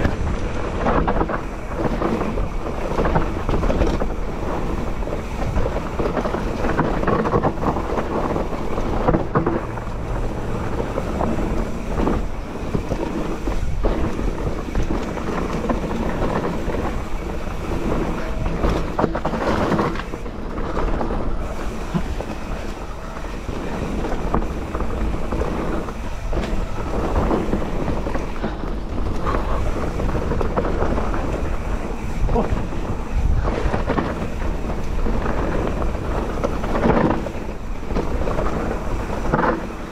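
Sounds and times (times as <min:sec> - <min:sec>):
mountain bike tyres and rattling: 0:00.0 - 0:39.9
wind buffeting microphone: 0:00.0 - 0:39.9.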